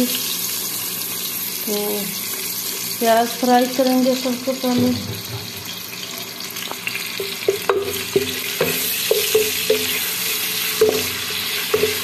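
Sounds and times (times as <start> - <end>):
onions sizzling in hot oil: 0.0 - 12.0
wooden spatula knocking pot: 7.2 - 10.0, 10.8 - 12.0.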